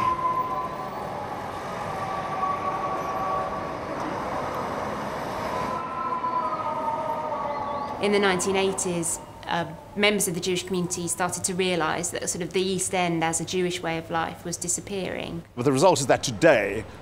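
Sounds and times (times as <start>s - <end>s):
high whining tones: 0.0s - 11.3s
street traffic noise: 0.0s - 12.2s, 14.9s - 17.0s.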